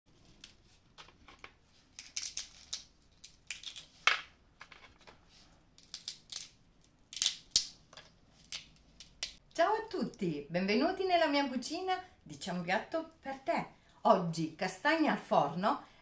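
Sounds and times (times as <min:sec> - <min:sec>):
chestnut shells crackling: 0:01.9 - 0:03.9, 0:05.8 - 0:09.4.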